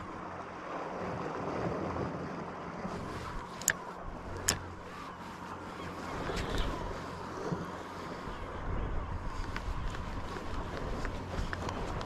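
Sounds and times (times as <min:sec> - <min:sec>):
gentle sea noise: 0:00.0 - 0:12.0
wind on microphone: 0:00.0 - 0:12.0
fishing gear clicks: 0:03.0 - 0:05.3, 0:09.5 - 0:12.0.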